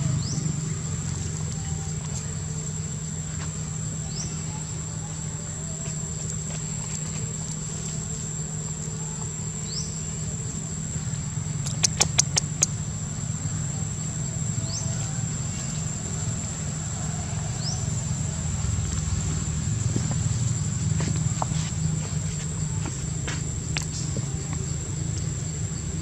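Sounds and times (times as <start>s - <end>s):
high insect drone: 0.0s - 26.0s
sharp clicks: 11.6s - 12.7s
short rising chirps: 11.6s - 12.7s.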